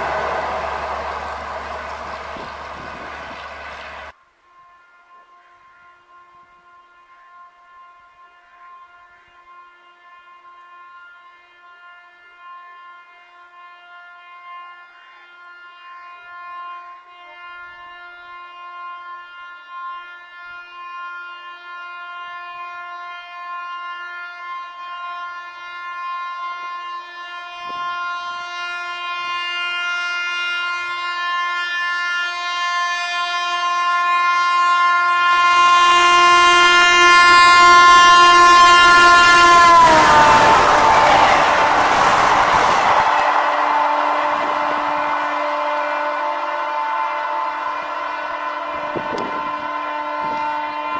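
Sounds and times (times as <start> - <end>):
train rushing past: 0.0 - 4.1, 38.4 - 49.5
locomotive horn blast: 0.0 - 50.9.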